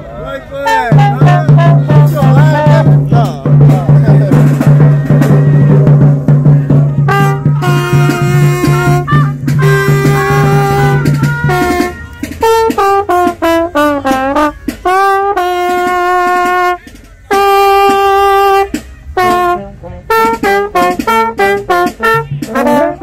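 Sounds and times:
trombone playing: 0.6s - 23.0s
low horn note: 4.6s - 23.0s.

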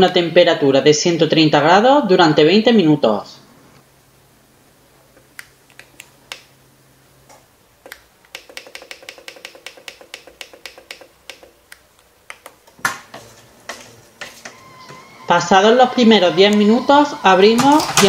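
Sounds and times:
touch-panel buttons clicking: 5.2s - 6.5s, 7.8s - 12.8s
appliance rough whirring: 12.9s - 18.0s.

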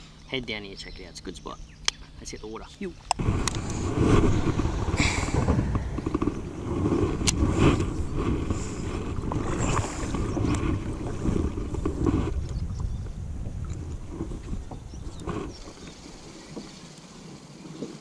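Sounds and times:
wind buffeting microphone: 3.1s - 16.6s.

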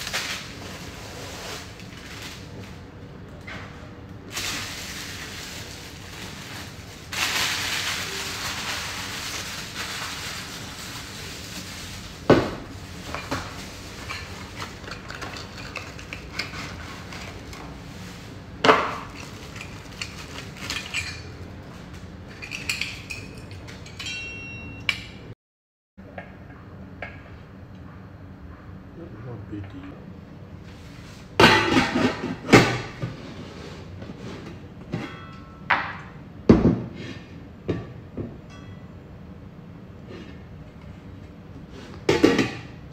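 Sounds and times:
bubble wrap rustling: 0.0s - 3.0s, 4.2s - 18.4s, 19.0s - 22.0s.

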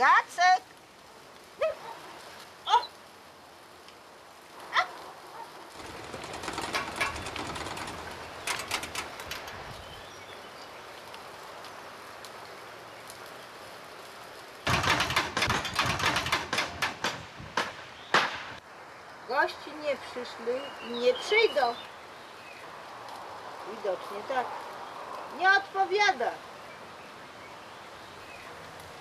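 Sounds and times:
rustling hiss with clicks: 0.0s - 29.0s
windmill rattling: 5.7s - 10.2s, 14.6s - 18.3s.

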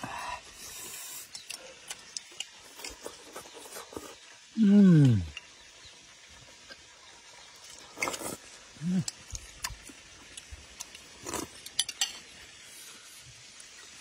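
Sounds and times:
spoon clinking on ceramic bowls: 11.7s - 12.2s.

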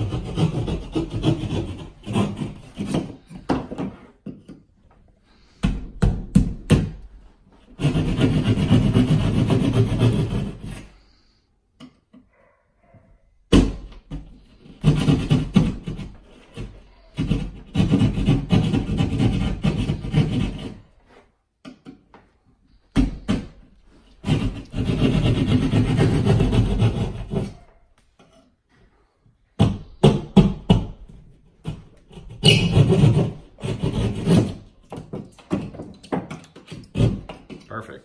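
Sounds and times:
hand saw cutting drywall: 0.0s - 4.2s, 5.6s - 11.1s, 13.6s - 21.3s, 22.9s - 27.7s, 29.6s - 37.6s.

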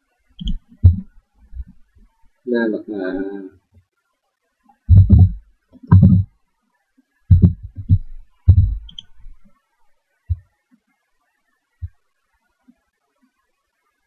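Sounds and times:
low thumps on microphone: 0.4s - 1.8s, 4.9s - 6.3s, 7.3s - 9.5s.

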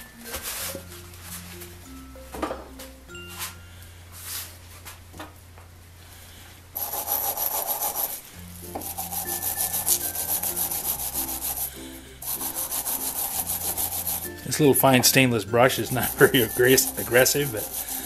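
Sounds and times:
wire brush scrubbing metal threads: 6.8s - 18.0s.

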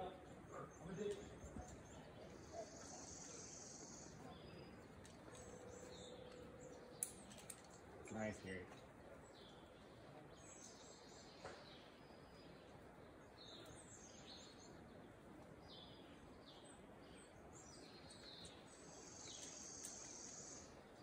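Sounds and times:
background hiss: 0.0s - 4.9s, 10.4s - 21.0s
songbirds chirping: 0.0s - 21.0s.

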